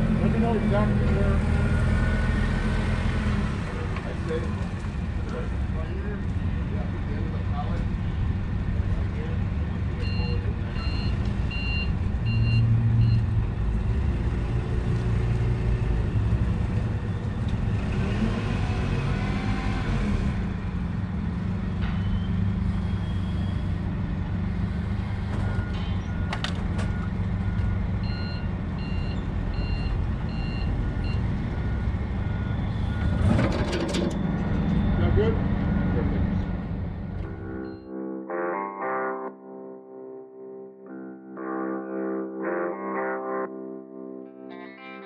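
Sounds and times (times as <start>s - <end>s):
lower slower beeping: 37.2s - 38.4s
backup alarm beeping: 37.3s - 38.2s.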